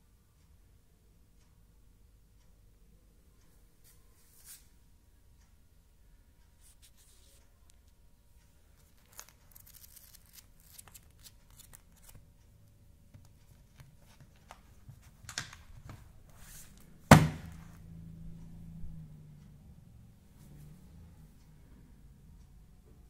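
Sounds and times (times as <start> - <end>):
plastic rustling and crinkling: 8.8 - 12.2.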